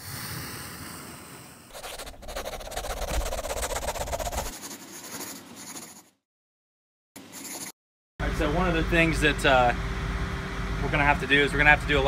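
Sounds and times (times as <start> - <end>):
pencil scribbling on paper: 1.7 - 6.1, 7.2 - 7.8.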